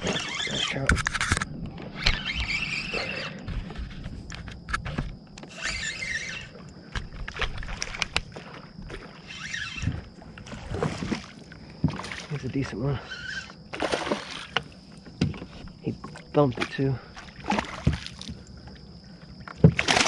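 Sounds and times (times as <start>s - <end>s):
fish splashing bursts: 13.8s - 14.5s.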